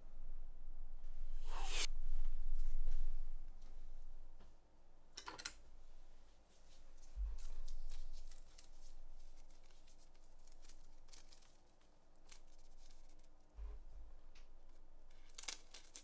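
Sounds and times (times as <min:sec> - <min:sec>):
rustling: 0:06.4 - 0:13.5, 0:14.7 - 0:16.0.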